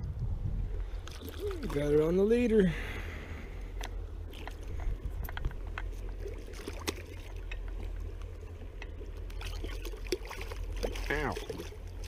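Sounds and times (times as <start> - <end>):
steady low rumble: 0.0 - 12.0
fish splashing in water: 1.0 - 1.9, 6.0 - 8.2, 9.0 - 12.0.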